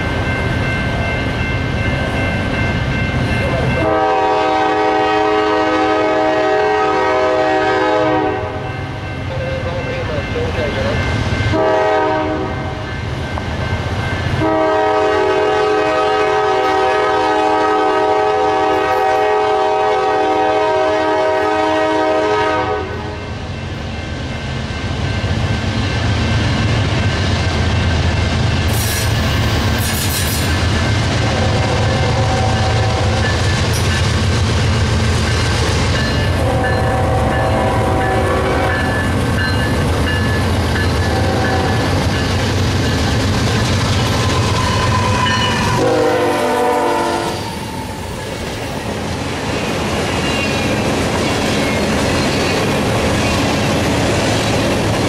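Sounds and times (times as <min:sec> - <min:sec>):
train rumbling past: 0:00.0 - 0:55.0
locomotive air horn: 0:03.8 - 0:08.6, 0:11.5 - 0:12.8, 0:14.4 - 0:23.2, 0:31.3 - 0:33.2, 0:36.4 - 0:38.9, 0:41.0 - 0:41.9, 0:44.4 - 0:48.0.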